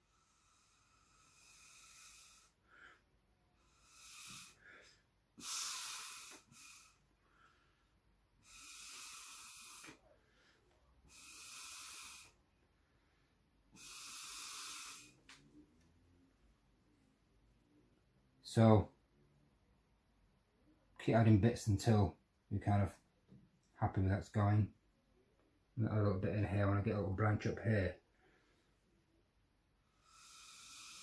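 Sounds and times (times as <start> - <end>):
breath blown through straw: 3.6 - 7.5, 8.4 - 10.5, 11.1 - 12.4, 13.7 - 15.2.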